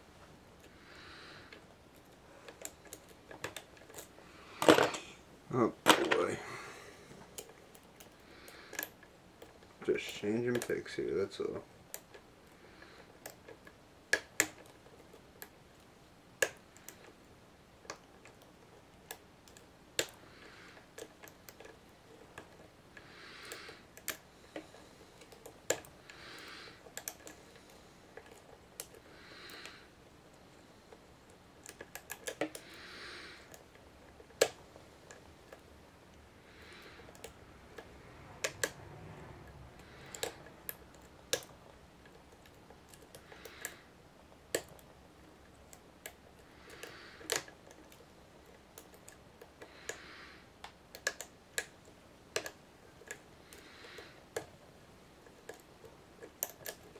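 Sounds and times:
lock pick clicking: 0:45.6 - 0:50.1.

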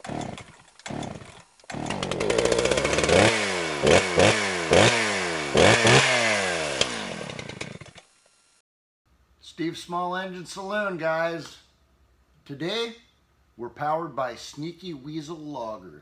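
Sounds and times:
chainsaw engine revving: 0:00.0 - 0:08.2.

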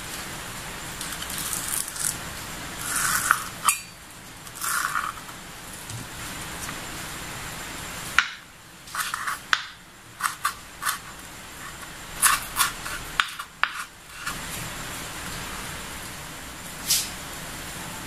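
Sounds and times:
knife cutting on wooden board: 0:08.9 - 0:14.5.

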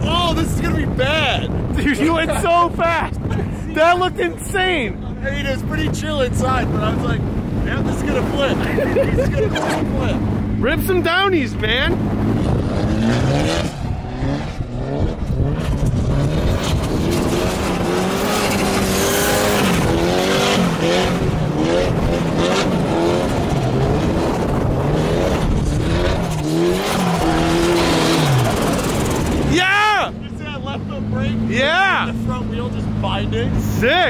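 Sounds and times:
car engine revving: 0:00.0 - 0:34.0
tyres sliding through dirt: 0:11.9 - 0:32.1.

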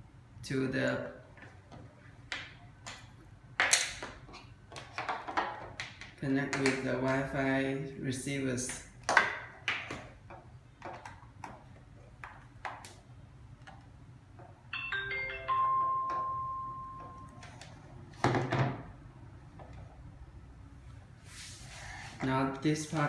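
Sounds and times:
electronic start-up chime: 0:14.8 - 0:17.4.

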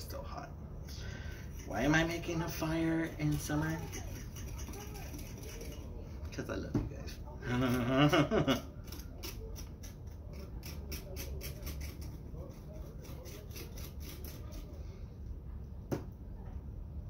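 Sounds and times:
knife scraping salt in stone bowl: 0:01.4 - 0:05.9, 0:08.9 - 0:14.7.

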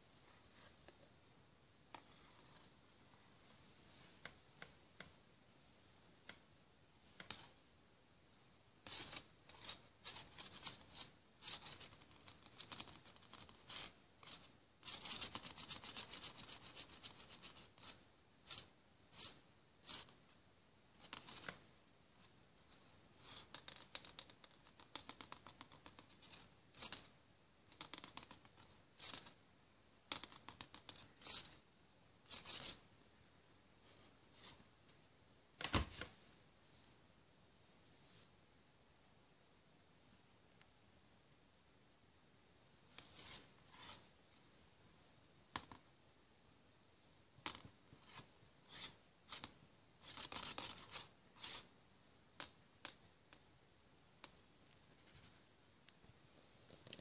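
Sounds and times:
scratchy rustling noises: 0:08.8 - 0:20.2, 0:32.2 - 0:32.9, 0:33.8 - 0:34.7, 0:42.9 - 0:44.2, 0:47.5 - 0:51.7, 0:54.8 - 0:55.5.

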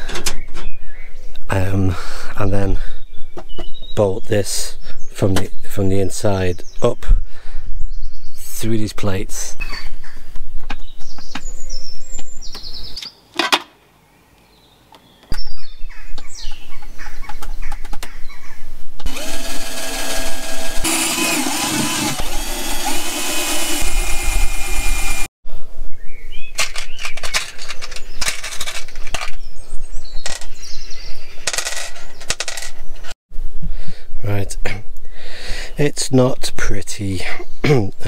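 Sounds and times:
drill boring through sheet metal: 0:19.0 - 0:25.3.

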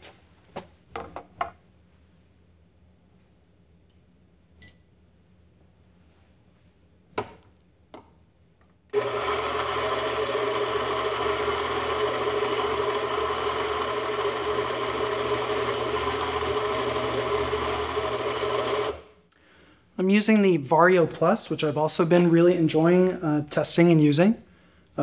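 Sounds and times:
coffee grinder grinding beans: 0:08.9 - 0:19.1.

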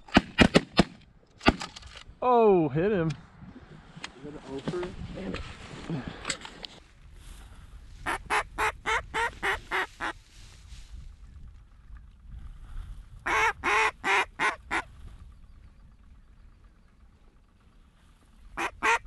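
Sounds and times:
duck call quacks: 0:08.0 - 0:10.2, 0:13.2 - 0:14.9, 0:18.6 - 0:19.0.

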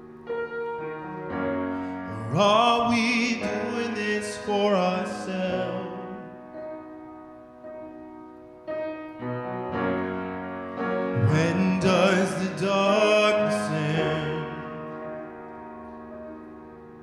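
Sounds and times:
grand piano chords: 0:00.0 - 0:17.0
man singing: 0:02.1 - 0:06.4, 0:11.2 - 0:15.0.

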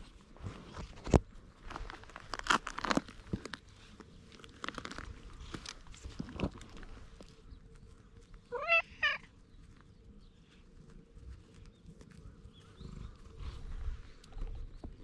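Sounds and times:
cat meowing: 0:08.5 - 0:09.3.

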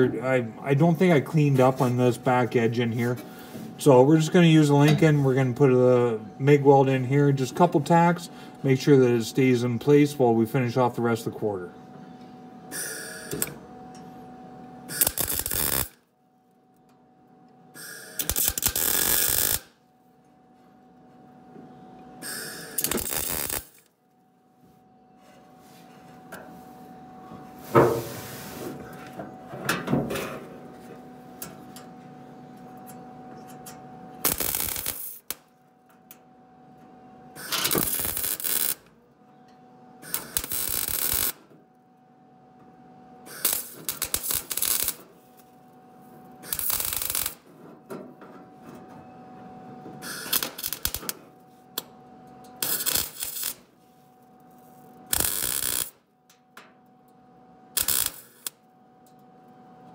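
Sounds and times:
welder steady hum: 0:00.0 - 0:59.9
welding arc crackle: 0:12.7 - 0:13.5, 0:14.9 - 0:16.0, 0:17.8 - 0:19.8, 0:22.2 - 0:23.9, 0:34.2 - 0:35.5, 0:37.4 - 0:38.9, 0:40.0 - 0:41.4, 0:43.3 - 0:45.5, 0:46.4 - 0:47.5, 0:50.0 - 0:51.2, 0:52.5 - 0:53.7, 0:54.5 - 0:56.0, 0:57.8 - 0:58.6.

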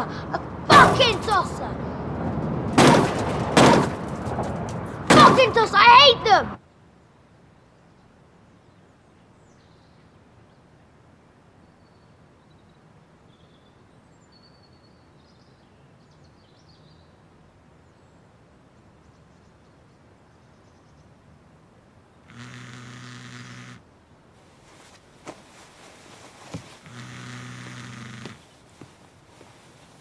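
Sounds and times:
faint steady hiss: 0:06.6 - 0:30.0.

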